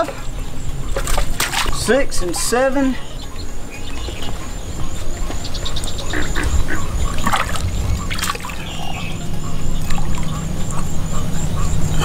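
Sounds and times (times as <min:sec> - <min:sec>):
fish splashing into water: 0:01.0 - 0:01.8, 0:07.0 - 0:09.0
water dripping and trickling: 0:03.8 - 0:11.0.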